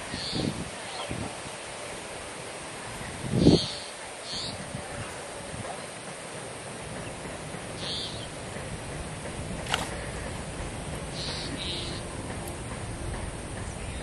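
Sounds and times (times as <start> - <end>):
wind-like rustle and hiss: 0.0 - 14.0
high hissing chirps: 6.6 - 8.7, 9.9 - 12.8.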